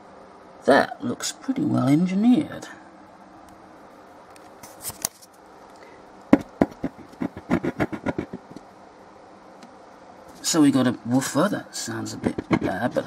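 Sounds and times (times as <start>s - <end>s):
speaker cone scratchy clicks: 6.4s - 8.7s.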